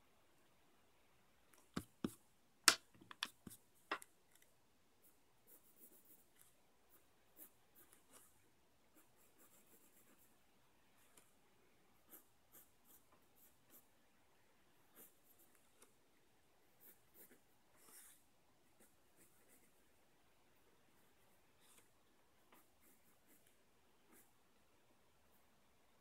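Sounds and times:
sharp clicks and taps: 0:01.6 - 0:04.5
pencil scratching on paper: 0:05.4 - 0:10.3, 0:12.0 - 0:13.8, 0:14.9 - 0:15.6, 0:16.8 - 0:18.2, 0:18.8 - 0:19.8.

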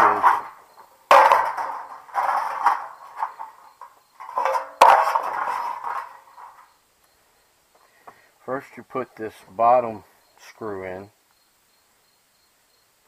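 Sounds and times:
sheet metal scraping and clanking: 0:00.0 - 0:06.7.

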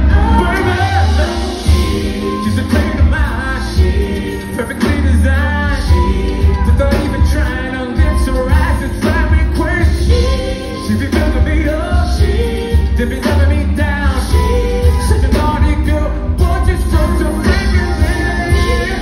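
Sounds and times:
live band playing: 0:00.0 - 0:19.0.

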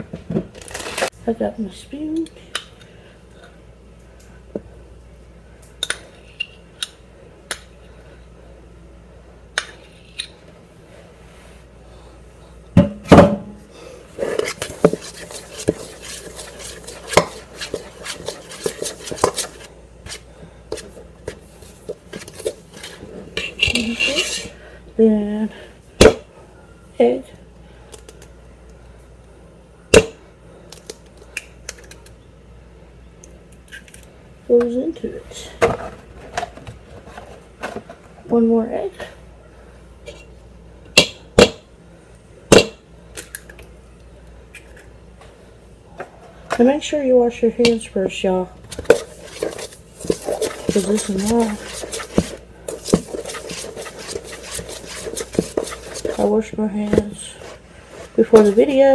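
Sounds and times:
spoon stirring in a metal bowl: 0:14.2 - 0:21.0, 0:22.1 - 0:24.5, 0:48.7 - 0:58.9.

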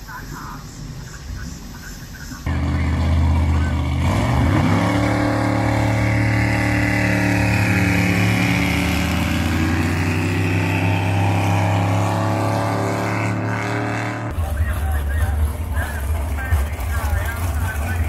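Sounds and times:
boat engine running hard: 0:02.5 - 0:18.0.

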